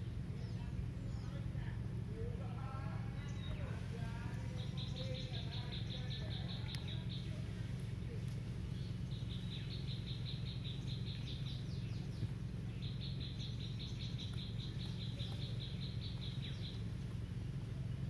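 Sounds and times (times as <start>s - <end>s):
steady low rumble: 0.0s - 18.0s
animal high chirps: 12.8s - 16.9s.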